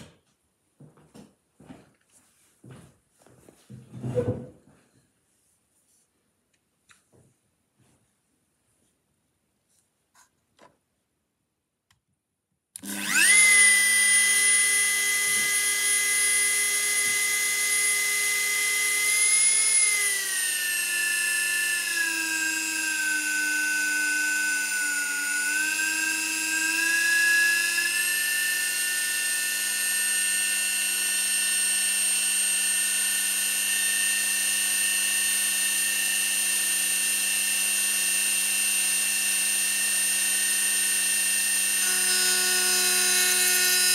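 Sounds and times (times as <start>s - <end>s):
rotary tool motor whine: 12.8s - 43.9s.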